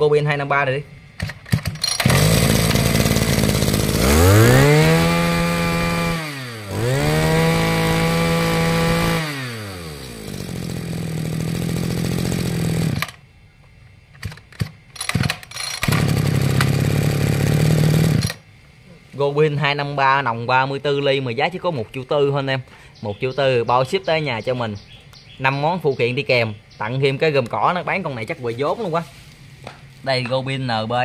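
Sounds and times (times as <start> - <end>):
brush cutter engine revving: 1.8 - 13.2, 15.1 - 18.4.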